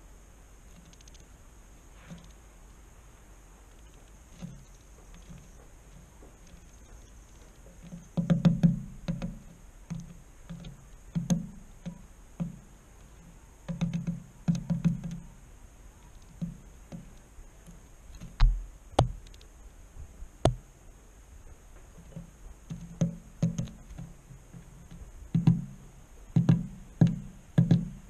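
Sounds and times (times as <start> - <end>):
bird pecking on wooden board: 3.7 - 19.5, 21.7 - 28.0.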